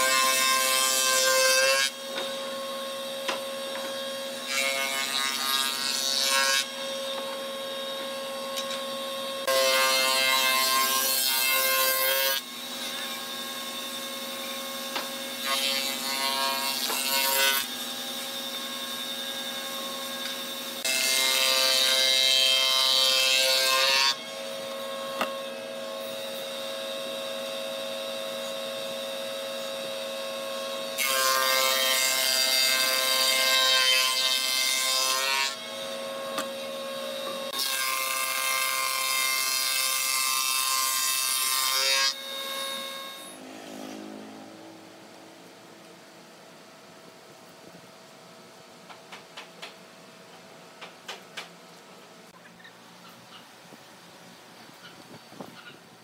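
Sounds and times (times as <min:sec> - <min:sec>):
planer cutting wood boards: 0:00.0 - 0:44.6.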